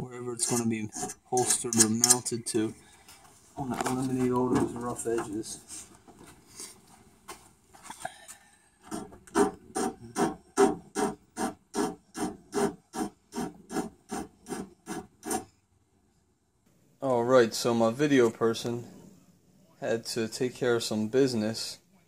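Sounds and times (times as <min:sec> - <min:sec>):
abrasive tool stroking steel: 0:00.4 - 0:02.3.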